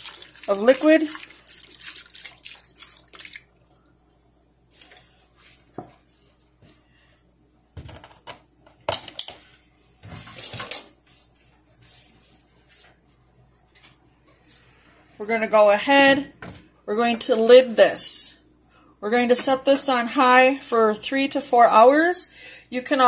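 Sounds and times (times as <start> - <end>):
broth pouring: 0.0 - 3.8.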